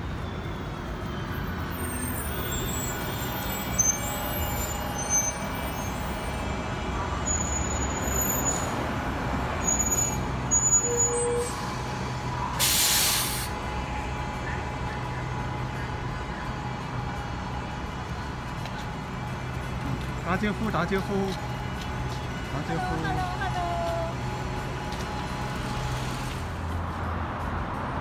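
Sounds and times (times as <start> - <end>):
bus engine rumbling: 0.0 - 28.0
street traffic: 0.0 - 28.0
short high squeaks: 9.6 - 11.6
air brakes hissing: 12.5 - 13.6.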